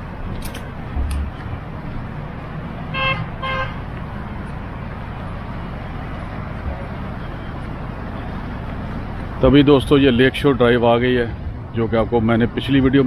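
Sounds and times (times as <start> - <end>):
road traffic hum: 0.0 - 13.0
car horn beeps: 2.9 - 3.8.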